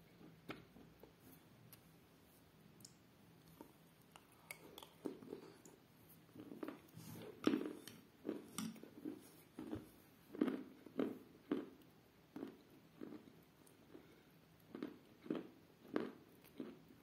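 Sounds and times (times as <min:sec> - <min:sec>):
person chewing crunchy pieces: 0:03.4 - 0:16.9.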